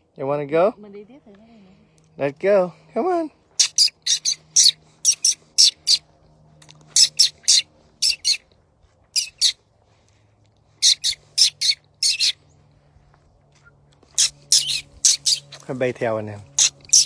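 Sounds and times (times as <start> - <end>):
jays calling: 3.5 - 6.1, 6.8 - 8.5, 9.1 - 9.6, 10.7 - 12.6, 14.0 - 15.6, 16.5 - 17.0.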